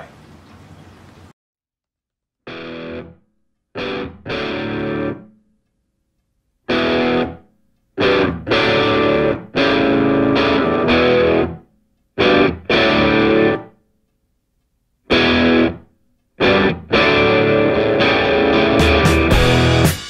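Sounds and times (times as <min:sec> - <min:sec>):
distorted electric guitar chords: 0:02.5 - 0:03.2, 0:03.8 - 0:05.3, 0:06.7 - 0:11.6, 0:12.2 - 0:13.8, 0:15.1 - 0:20.0.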